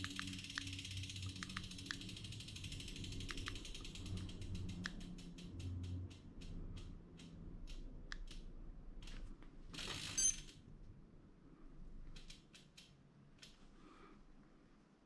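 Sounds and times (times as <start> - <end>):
bike freewheel ratchet clicking: 0.0 - 8.4, 9.8 - 10.6.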